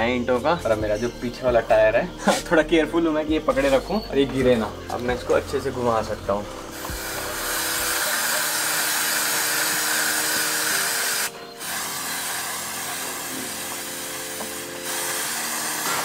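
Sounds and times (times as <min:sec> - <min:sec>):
aerosol spray hissing: 0:06.7 - 0:16.0.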